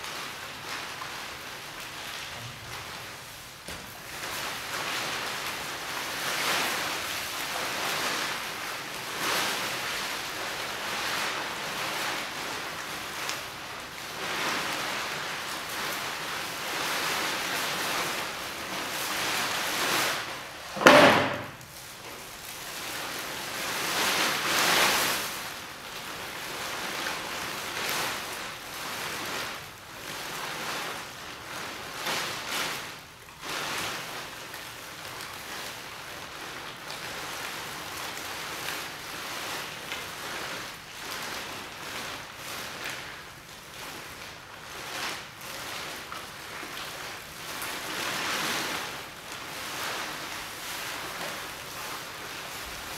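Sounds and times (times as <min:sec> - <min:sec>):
plastic tarpaulin rustling: 0:00.0 - 0:52.9
loud thump: 0:20.8 - 0:21.6.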